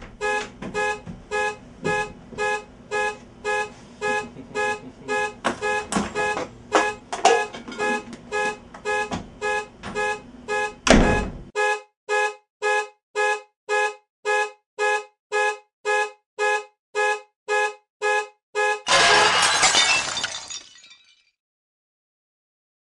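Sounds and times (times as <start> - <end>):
horn-like alarm beeping: 0.2 - 19.7
glass breaking: 18.9 - 21.2.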